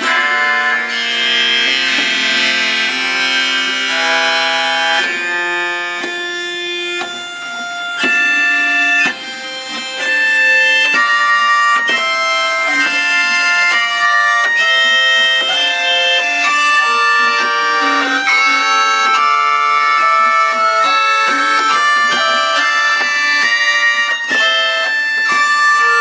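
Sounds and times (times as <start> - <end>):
bowed string instrument melody: 0.0 - 26.0.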